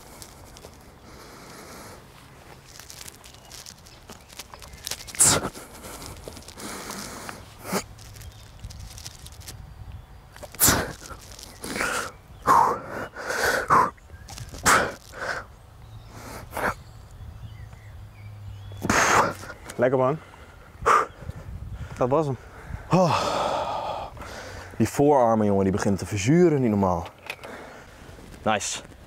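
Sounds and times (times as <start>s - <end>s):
man exhaling forcefully: 22.8s - 24.6s.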